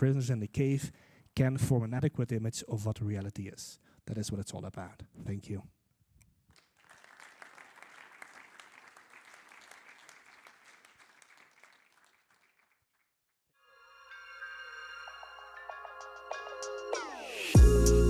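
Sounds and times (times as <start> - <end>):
audience applauding: 6.5 - 13.1
music: 13.6 - 18.0.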